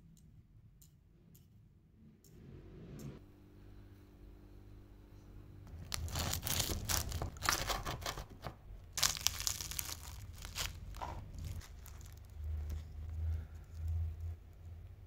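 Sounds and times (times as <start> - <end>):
knife cracking crisp pastry: 5.7 - 14.0.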